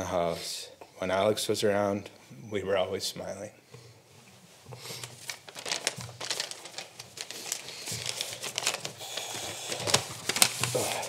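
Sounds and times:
paper rustling: 4.7 - 11.0.

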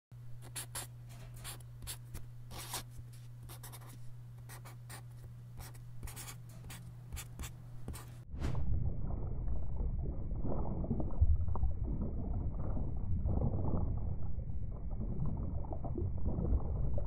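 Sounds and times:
steady low hum: 0.2 - 17.0
loud low rushing noise: 8.3 - 9.8.

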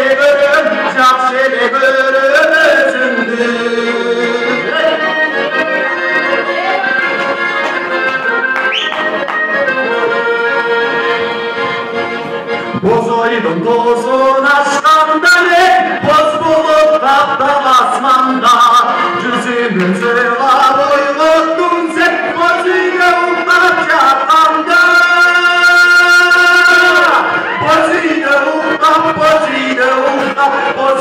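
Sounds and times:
accordion playing a tune: 0.0 - 31.0
short rising whistle: 8.6 - 9.1.

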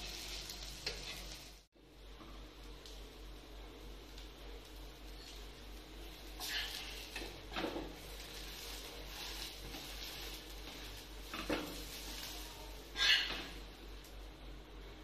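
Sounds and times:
metal spatula scraping a pan: 6.4 - 13.6.

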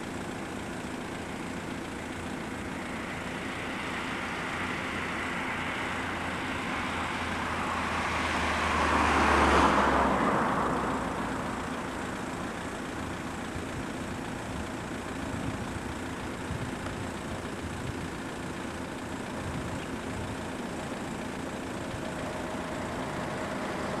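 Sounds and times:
traffic hum: 0.0 - 24.0
vehicle passing close by: 3.6 - 11.2, 22.0 - 24.0.

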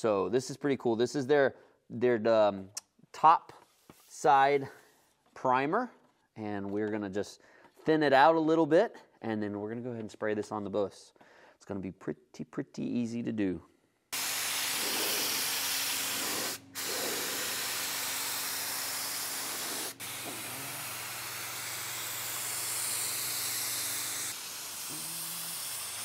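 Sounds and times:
spray gun hissing: 14.2 - 26.0.

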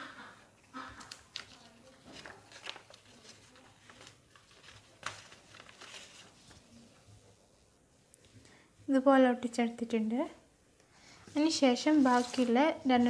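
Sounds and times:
paper rustling and crinkling: 0.8 - 7.6, 11.2 - 13.0.

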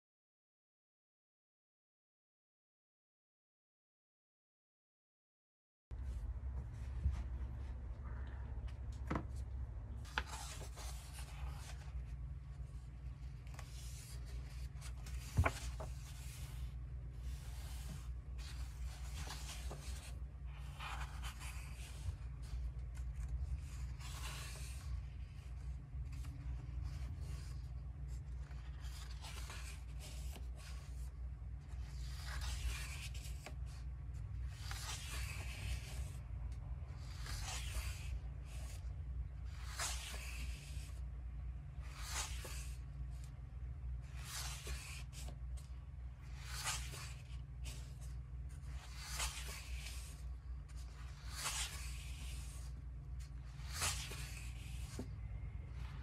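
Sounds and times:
low hum: 5.9 - 29.6
soft paper rustling: 6.0 - 56.0
book pages turning: 8.6 - 56.0.

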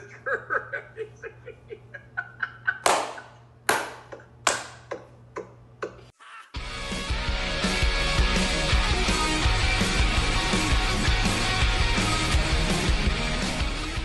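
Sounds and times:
men laughing: 0.0 - 3.5.

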